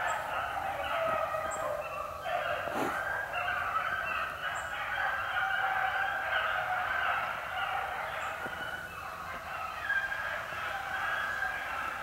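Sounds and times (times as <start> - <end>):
hounds baying: 0.0 - 12.0.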